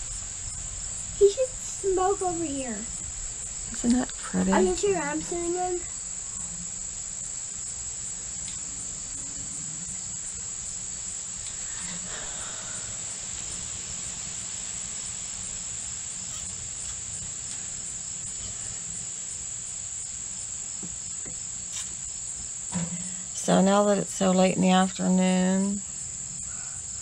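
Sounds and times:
insect chorus trilling: 0.0 - 27.0.

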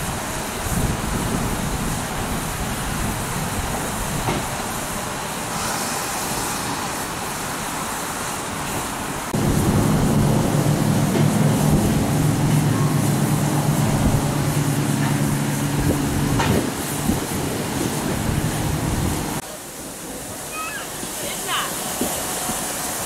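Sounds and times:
steam hissing softly: 0.0 - 23.0
steady low hum: 9.3 - 19.4.

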